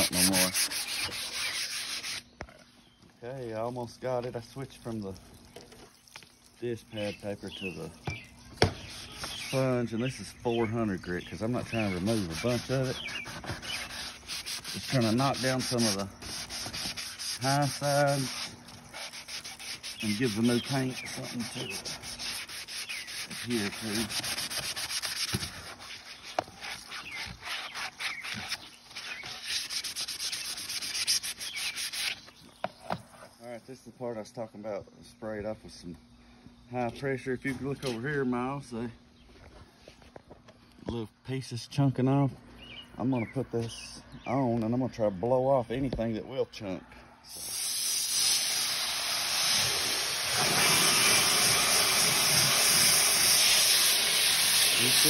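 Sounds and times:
sanding sponge rubbing: 0:00.0 - 0:02.3, 0:08.7 - 0:09.8, 0:11.4 - 0:32.3, 0:50.4 - 0:55.0
hose water spraying on plastic: 0:03.5 - 0:33.4, 0:47.3 - 0:55.0.

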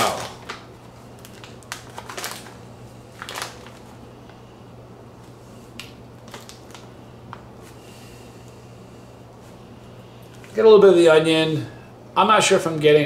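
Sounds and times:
snack bag crinkling: 0:00.0 - 0:04.0, 0:05.7 - 0:07.4
low steady hum: 0:00.0 - 0:13.0.

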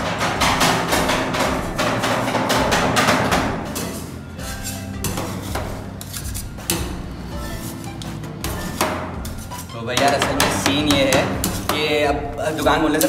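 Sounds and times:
metal spatulas clacking on steel: 0:00.0 - 0:06.9, 0:08.6 - 0:11.8
background music: 0:00.0 - 0:13.0.

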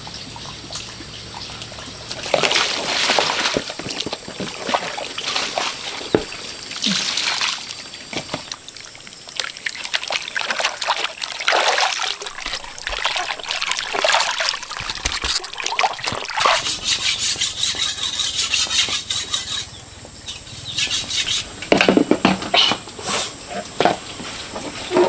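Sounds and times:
water splashing and trickling: 0:00.0 - 0:19.8.

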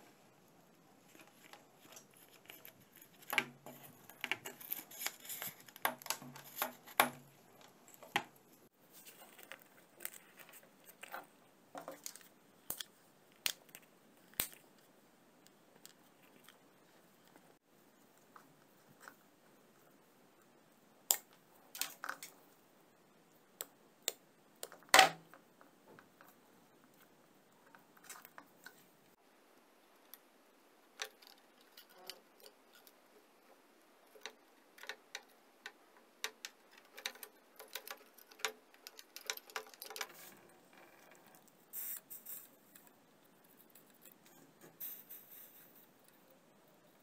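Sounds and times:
soldering iron hiss: 0:41.7 - 0:42.5.

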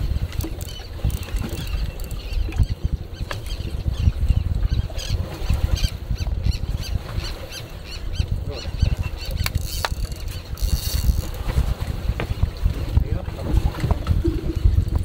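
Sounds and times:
wind buffeting microphone: 0:00.0 - 0:15.0.

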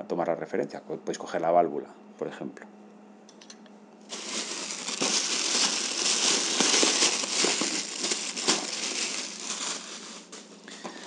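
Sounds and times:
plastic bag crinkling: 0:04.1 - 0:11.0.

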